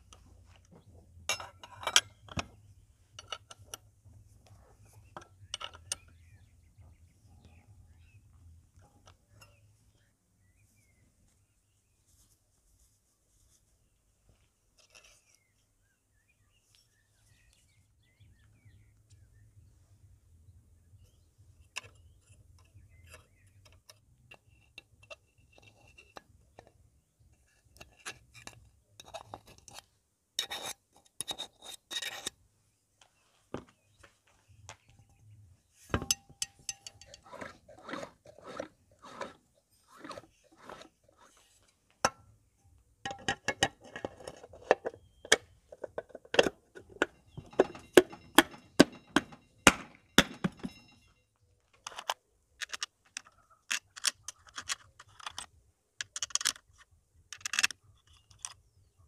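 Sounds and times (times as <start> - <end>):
tools clinking on metal casing: 1.2 - 6.4, 8.8 - 9.7, 35.9 - 39.9, 42.0 - 56.7.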